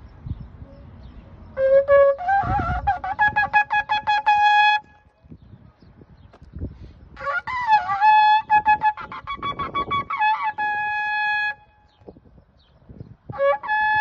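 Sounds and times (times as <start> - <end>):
shofar horn blown: 1.6 - 5.0, 7.2 - 11.8, 13.3 - 14.0.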